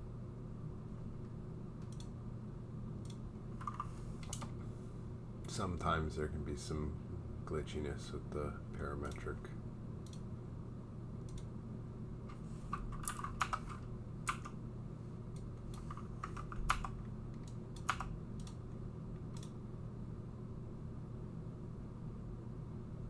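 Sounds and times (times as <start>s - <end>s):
steady low hum: 0.0s - 23.0s
computer keyboard typing: 3.6s - 4.5s, 12.7s - 14.6s, 15.7s - 18.6s.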